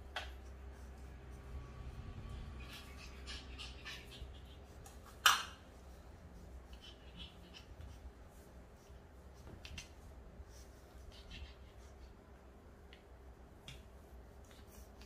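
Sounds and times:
puppy yipping: 0:02.5 - 0:05.6.

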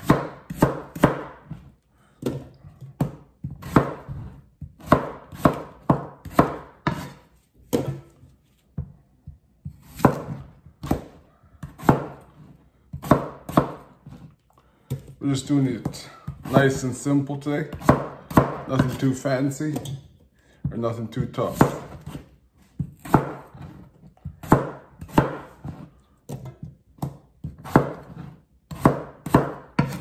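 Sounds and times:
knife chopping on cutting board: 0:00.0 - 0:08.2, 0:08.8 - 0:14.3, 0:17.7 - 0:19.1, 0:21.5 - 0:30.0.

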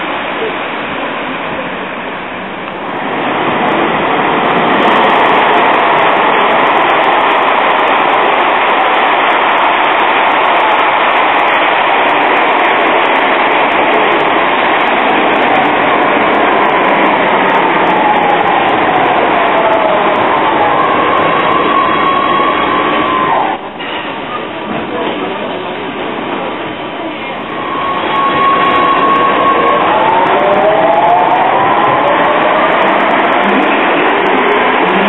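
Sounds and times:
tram wheels rumbling on rail: 0:00.0 - 0:35.0
falling braking whine: 0:27.2 - 0:35.0.

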